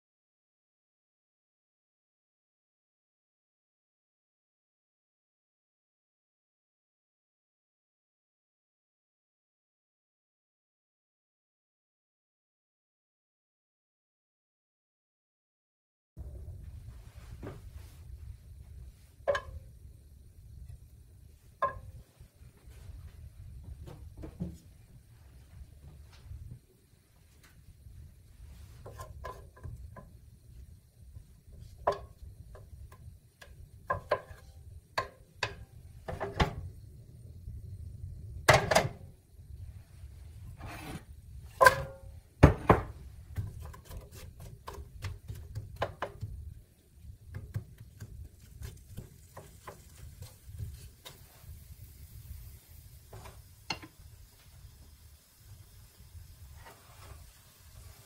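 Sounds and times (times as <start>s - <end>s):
faint hiss: 16.2s - 58.0s.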